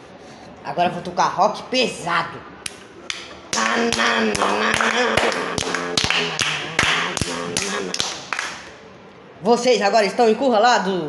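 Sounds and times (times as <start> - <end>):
person vocally mimicking rock tune: 3.5 - 8.3.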